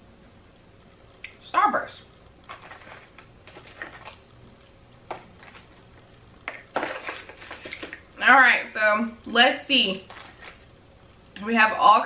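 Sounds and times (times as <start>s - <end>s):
wrappers crinkling: 2.4s - 5.8s, 10.0s - 10.7s.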